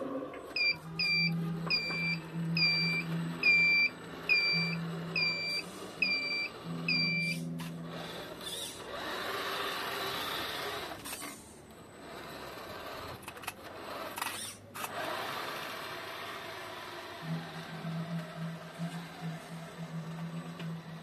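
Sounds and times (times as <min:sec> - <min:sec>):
low hum: 0:00.0 - 0:09.2, 0:16.5 - 0:21.0
reversing alarm beeping: 0:00.4 - 0:08.7, 0:17.2 - 0:21.0
toy truck driving on stone: 0:00.5 - 0:21.0.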